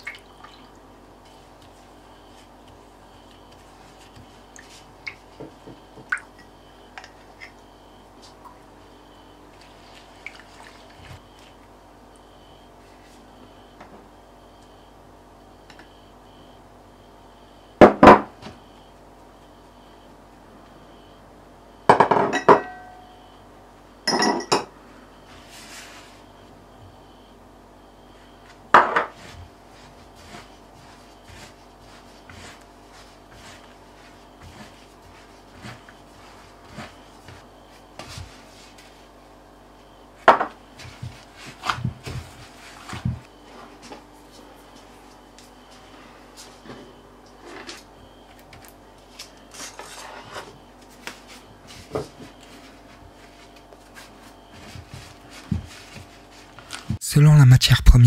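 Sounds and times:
hand brushing flour in bowl: 29.2 - 37.0.

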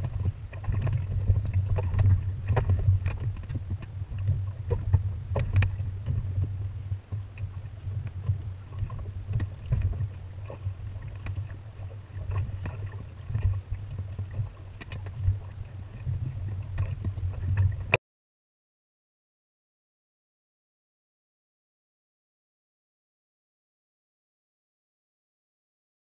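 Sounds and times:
low wind and water rumble: 0.0 - 18.0
water slapping against hull: 0.0 - 18.0.

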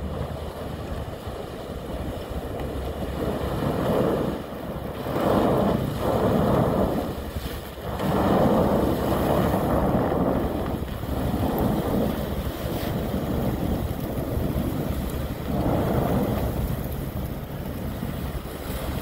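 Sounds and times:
churned water at hull: 0.0 - 19.0
low boat engine rumble: 0.0 - 19.0.

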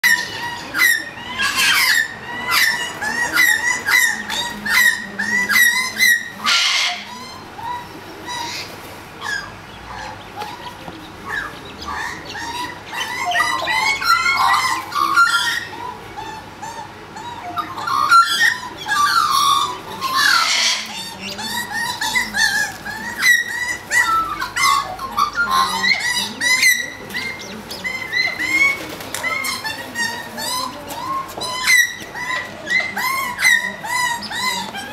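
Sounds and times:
magpies sharp calls: 0.0 - 34.9
harsh bird screeching: 17.6 - 34.9.

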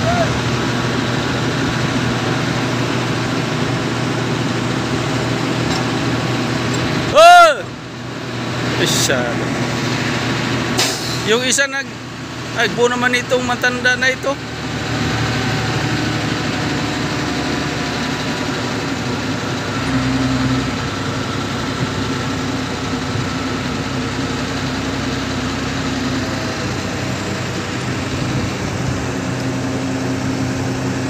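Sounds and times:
heavy diesel engine running: 0.0 - 31.0.

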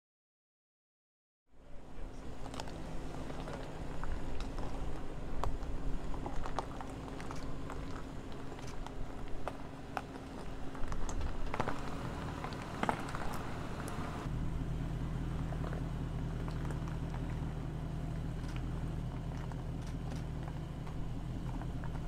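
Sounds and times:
engine rumbling at low revs: 1.5 - 22.0
tyres crunching on rock: 2.2 - 14.2.

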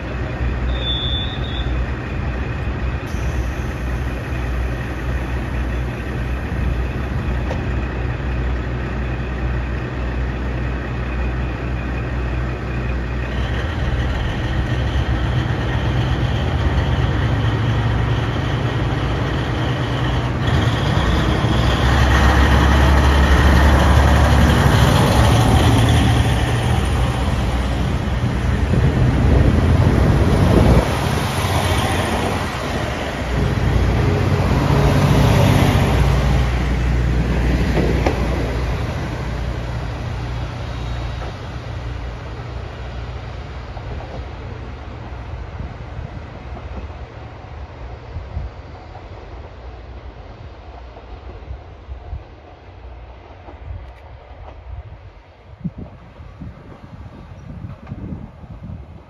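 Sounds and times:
diesel train engines: 0.0 - 59.0.

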